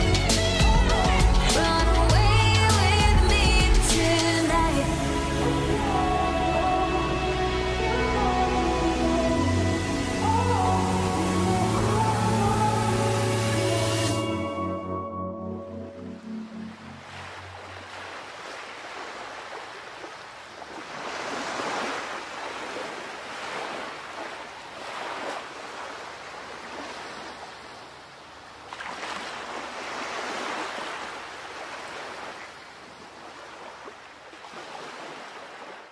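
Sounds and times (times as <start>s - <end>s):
sea waves washing in: 16.0s - 35.9s.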